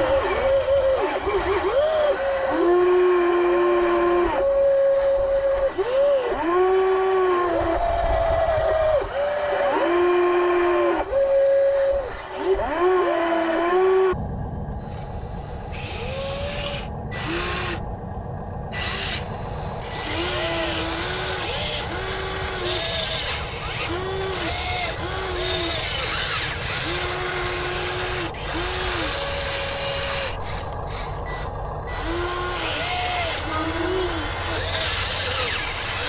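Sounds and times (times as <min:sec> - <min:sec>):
steady low rumble: 0:14.1 - 0:36.0
electric hydraulic pump whining: 0:15.7 - 0:17.9, 0:18.7 - 0:36.0.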